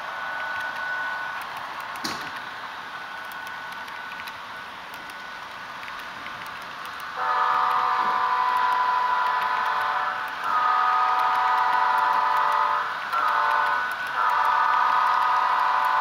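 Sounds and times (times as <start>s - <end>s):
model train rolling: 0.0s - 16.0s
multi-tone locomotive horn: 7.2s - 16.0s.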